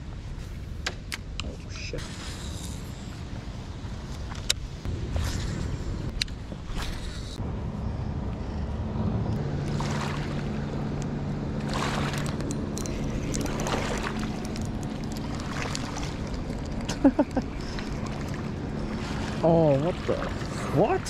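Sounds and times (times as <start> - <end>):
wind buffeting microphone: 2.0 - 21.0
low steady motor hum: 7.4 - 21.0
fishing reel being handled: 12.3 - 13.7.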